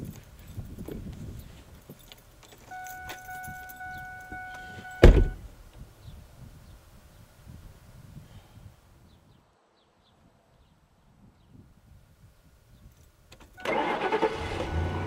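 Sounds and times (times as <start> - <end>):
clicks and shuffling in seat: 0.0 - 5.4
car warning chime: 2.7 - 5.4
car door slamming: 4.5 - 5.4.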